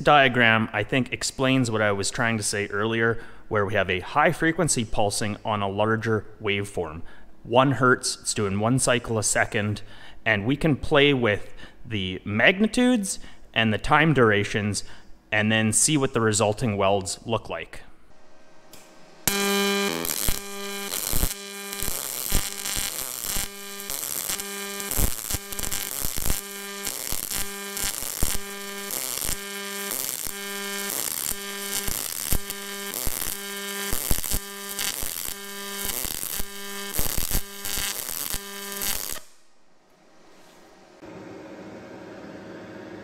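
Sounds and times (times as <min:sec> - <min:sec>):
buzzing pulsed welding arc: 0:18.8 - 0:39.5.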